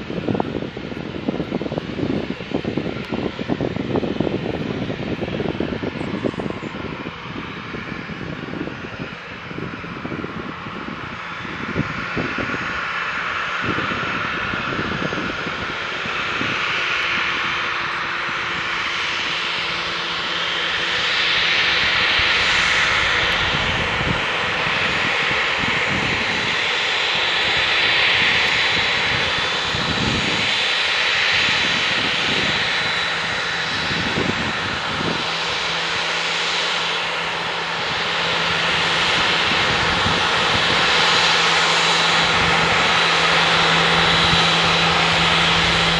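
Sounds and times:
jet engines taxiing: 0:00.0 - 0:45.9.

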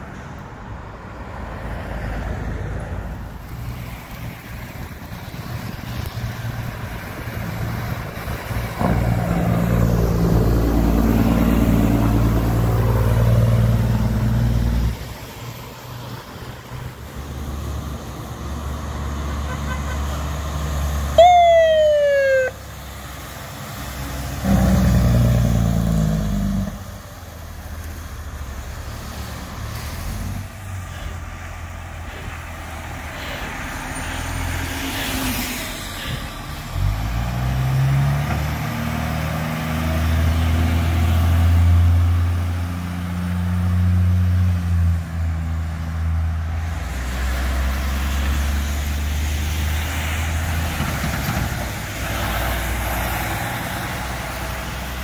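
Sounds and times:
truck diesel engine: 0:02.9 - 0:55.0
fire truck siren whoop: 0:20.8 - 0:22.7.

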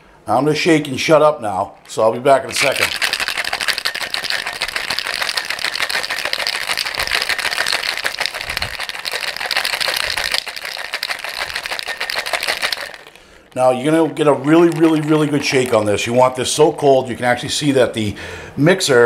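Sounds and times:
ice rattling in cocktail shaker: 0:01.9 - 0:16.7.

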